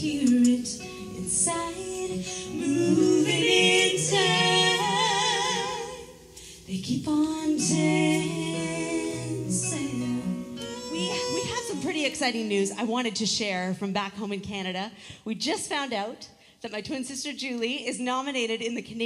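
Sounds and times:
women singing in harmony: 0.0s - 12.2s.

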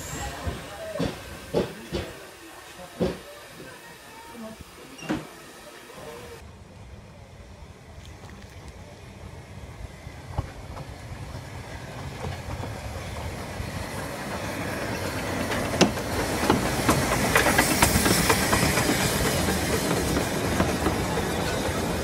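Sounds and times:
hiss of steam: 0.0s - 6.4s, 11.4s - 22.0s
steam train running: 0.0s - 8.0s, 8.8s - 22.0s.

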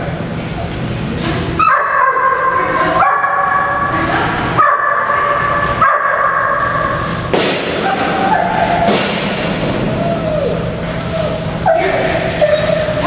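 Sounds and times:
dog whining: 0.0s - 3.1s, 6.3s - 13.0s.

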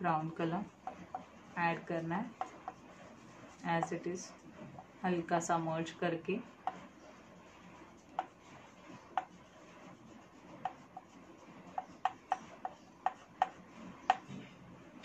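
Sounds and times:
pastel shading strokes on paper: 0.0s - 15.0s
pastel ticking on paper: 0.2s - 1.3s, 2.3s - 3.1s, 6.6s - 6.9s, 7.8s - 14.2s.

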